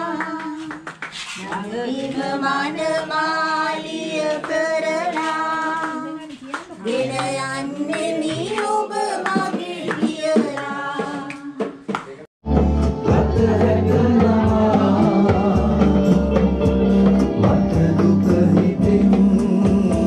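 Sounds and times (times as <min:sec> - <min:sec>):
group singing: 0:00.0 - 0:11.8, 0:12.6 - 0:20.0
hand claps: 0:00.1 - 0:01.7, 0:04.4 - 0:12.3.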